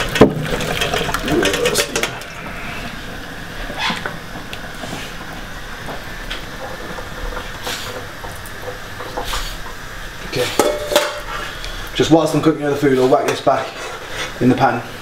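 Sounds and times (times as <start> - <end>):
pan and colander clinking: 0.0 - 2.3, 10.4 - 11.3.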